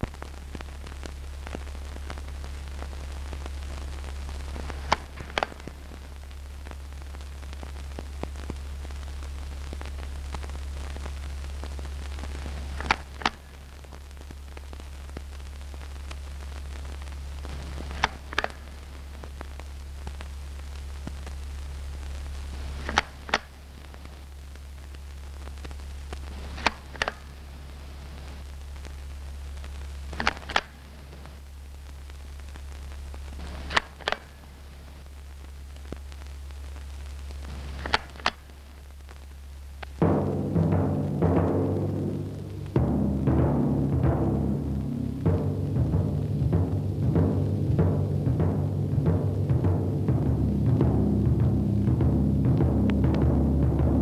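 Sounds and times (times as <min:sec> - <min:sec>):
film soundtrack hum and hiss: 0:00.0 - 0:54.0
sharp clicks: 0:17.8 - 0:18.9, 0:22.7 - 0:24.0, 0:26.4 - 0:27.4, 0:30.1 - 0:31.4, 0:33.4 - 0:34.5, 0:36.8 - 0:39.2.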